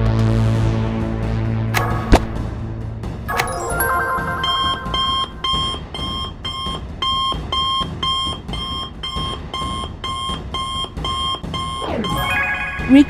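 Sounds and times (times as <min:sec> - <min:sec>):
two-note electronic alert beeping: 0:03.3 - 0:06.6, 0:11.1 - 0:13.0.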